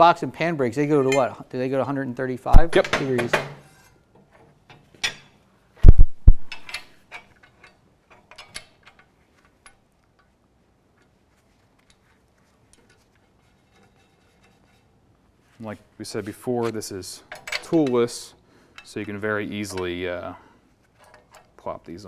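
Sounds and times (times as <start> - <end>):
heavy thumps: 5.8 - 6.7.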